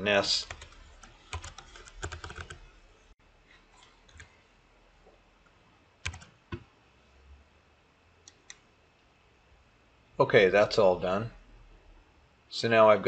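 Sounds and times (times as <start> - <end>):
computer keyboard keystrokes: 0.5 - 2.6, 6.0 - 6.6.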